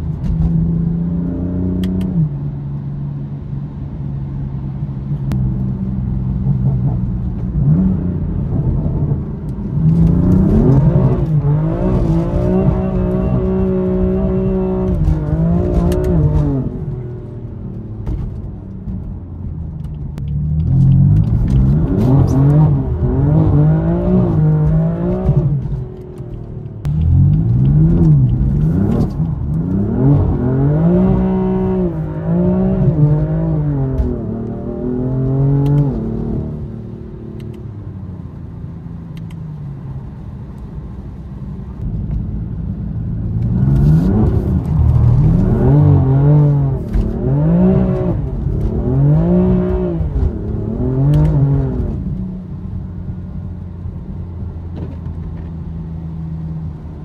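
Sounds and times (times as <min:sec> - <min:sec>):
car engine revving hard: 0:09.9 - 0:16.8, 0:26.9 - 0:36.6, 0:43.5 - 0:52.0.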